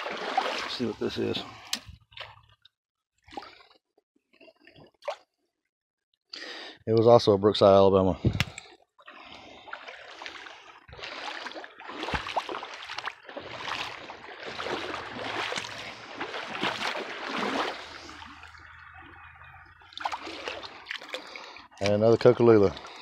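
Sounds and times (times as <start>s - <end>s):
stream running: 0.0s - 2.4s, 9.1s - 23.0s
person wading through water: 0.0s - 2.6s, 3.2s - 5.3s, 8.6s - 23.0s.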